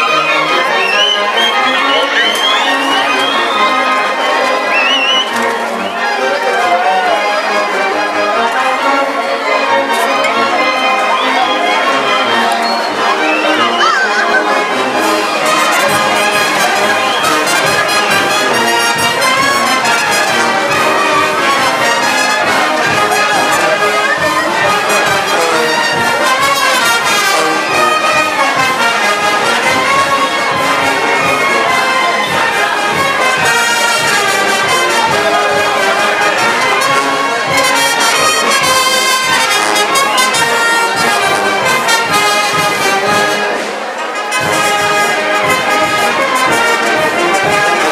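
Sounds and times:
brass band playing dance music: 0:00.0 - 0:47.9
steady drum beat: 0:14.8 - 0:47.9.

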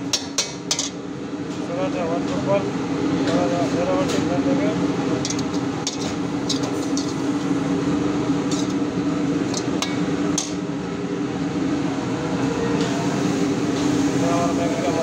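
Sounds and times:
steady background hum: 0:00.0 - 0:15.0
ladle clinking and scraping pan: 0:05.2 - 0:07.2.

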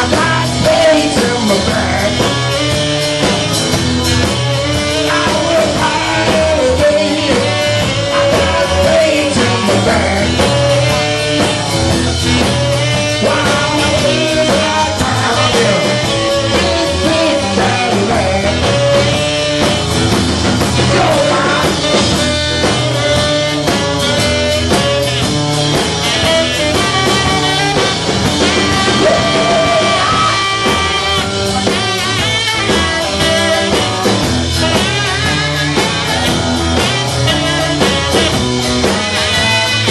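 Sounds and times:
male lead vocal: 0:00.0 - 0:02.7, 0:04.8 - 0:11.2, 0:12.8 - 0:19.6, 0:20.7 - 0:22.3, 0:28.5 - 0:30.8
live rock and roll band: 0:00.0 - 0:39.9
pub crowd: 0:00.0 - 0:39.9
saxophone: 0:00.0 - 0:39.9.

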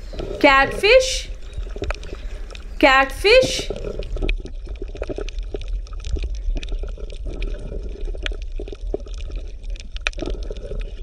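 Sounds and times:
water bubbling and gurgling: 0:00.0 - 0:11.0
small irregular clicks: 0:01.4 - 0:02.8, 0:03.7 - 0:11.0.

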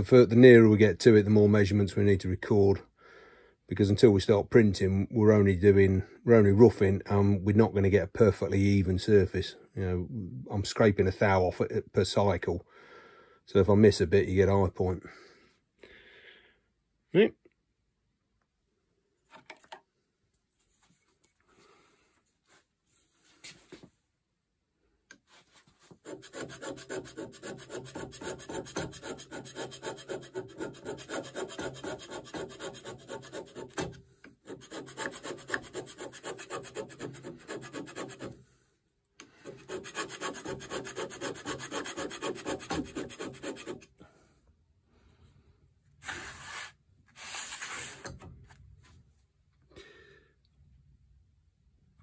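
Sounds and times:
hand scraper scraping metal: 0:26.0 - 0:38.4, 0:39.3 - 0:43.9.

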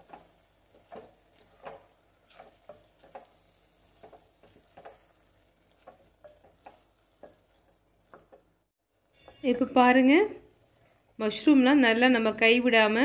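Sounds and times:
wooden spatula scraping a pot: 0:00.0 - 0:08.6
light sizzle of frying: 0:00.0 - 0:13.0.

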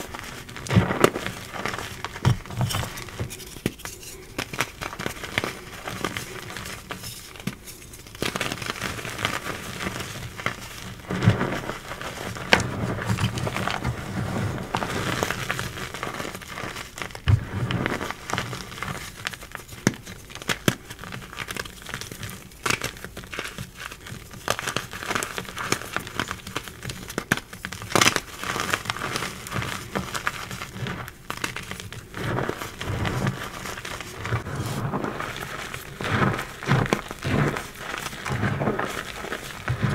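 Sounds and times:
hands crushing chalk blocks: 0:00.0 - 0:39.9.

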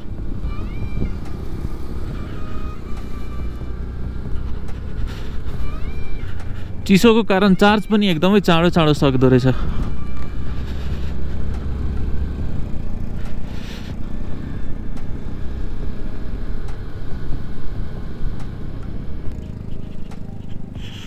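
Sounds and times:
motorcycle engine rumble: 0:00.0 - 0:21.0.

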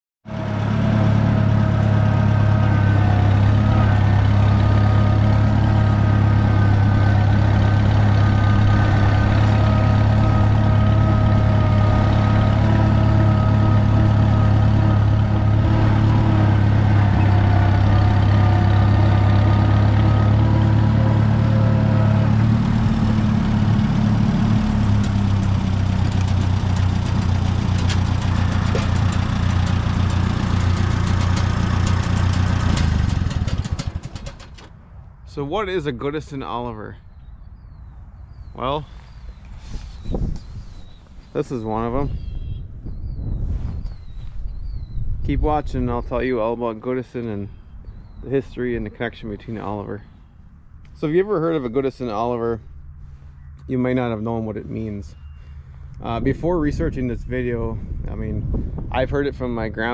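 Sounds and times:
tractor engine running: 0:00.2 - 0:36.4.

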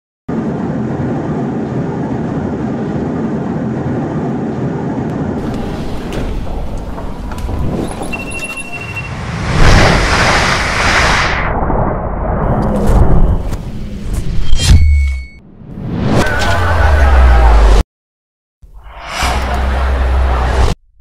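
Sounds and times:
airliner cabin rumble: 0:00.3 - 0:14.3
short electronic beep: 0:08.0 - 0:09.2, 0:14.4 - 0:15.5.

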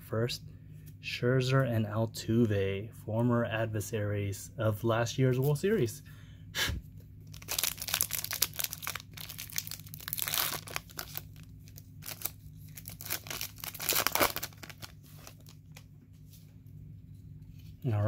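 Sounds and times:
foil wrapper tearing and crinkling: 0:07.3 - 0:15.6.

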